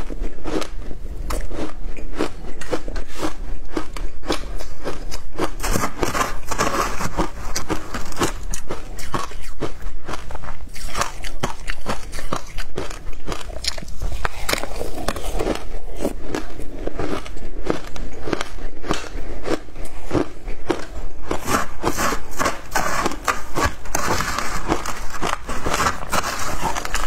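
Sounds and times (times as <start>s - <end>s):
chewing shaved ice: 0.0s - 27.0s
metal spoon scraping ice: 5.6s - 9.4s, 21.4s - 27.0s.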